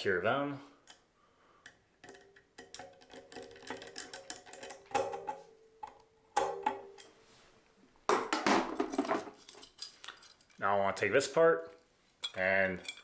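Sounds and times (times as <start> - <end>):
metal clatters: 12.2 - 13.0.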